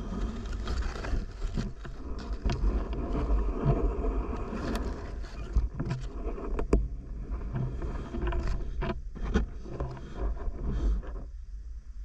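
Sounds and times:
low underwater rumble: 0:00.0 - 0:12.0.

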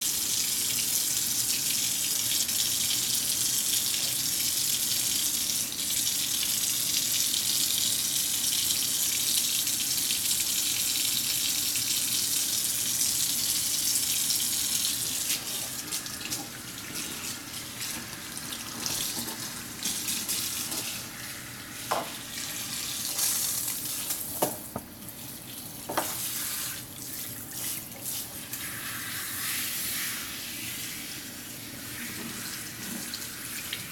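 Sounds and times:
faucet running water: 0:00.0 - 0:33.9.

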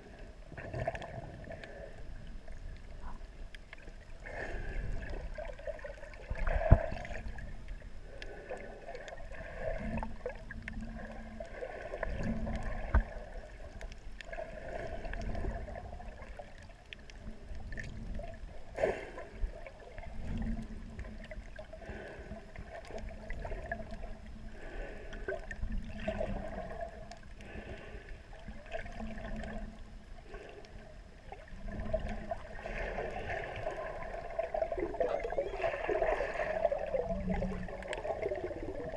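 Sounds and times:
underwater gurgling and sloshing: 0:00.0 - 0:38.9
swimmer kicking bubbles: 0:31.4 - 0:38.9.

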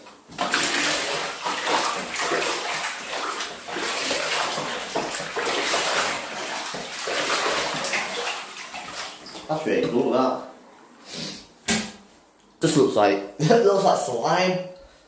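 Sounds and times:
bathwater sloshing: 0:00.1 - 0:10.2.

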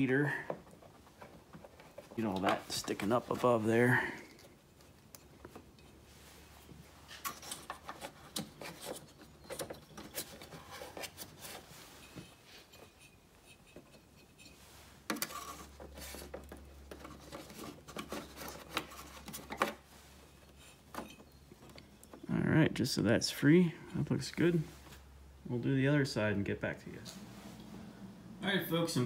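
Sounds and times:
rubbing and scraping of wiring: 0:00.0 - 0:22.3.

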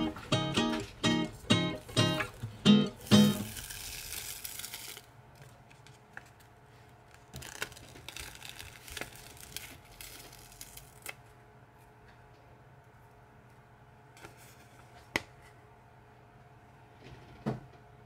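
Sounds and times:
crinkly material rustling: 0:03.4 - 0:11.2.

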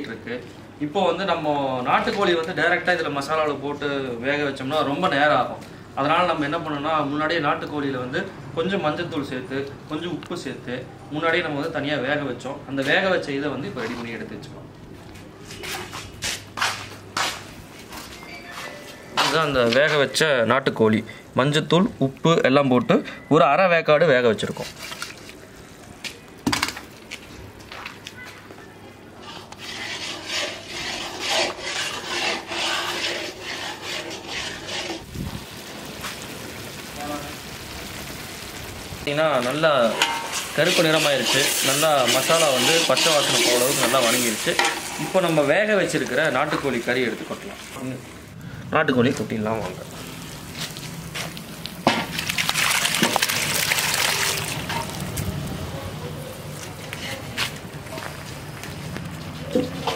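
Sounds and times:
metal spatula scraping paste: 0:29.2 - 0:35.0, 0:39.8 - 0:45.3
liquid splashing and sizzling: 0:29.2 - 0:48.4, 0:49.3 - 0:55.7
pot and spatula clinking: 0:39.8 - 0:41.4.

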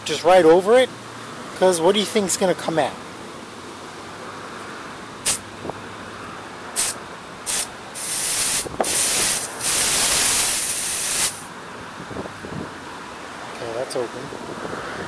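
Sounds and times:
compressed air blow gun hissing: 0:05.2 - 0:05.4, 0:06.8 - 0:11.5.

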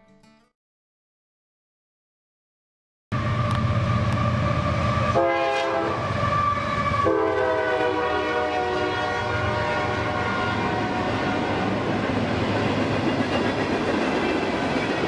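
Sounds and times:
train locomotives rumbling: 0:03.2 - 0:15.0
train air horn blasts: 0:03.8 - 0:11.7.

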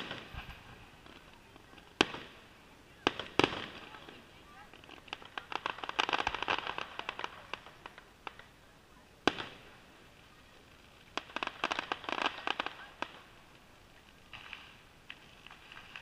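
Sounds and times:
firework bang: 0:00.0 - 0:01.2
crackling firework pops: 0:00.0 - 0:16.0.

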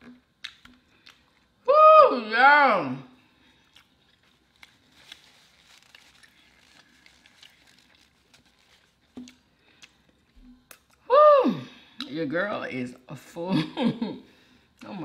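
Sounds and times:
paper napkin crinkling: 0:04.0 - 0:09.2.

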